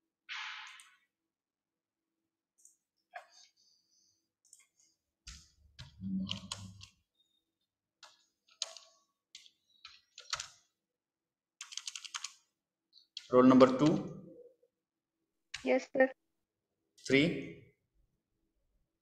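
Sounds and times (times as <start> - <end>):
keyboard and mouse clicks: 0.3 - 1.0, 4.4 - 7.0, 8.0 - 10.7, 11.6 - 12.5, 13.1 - 14.1.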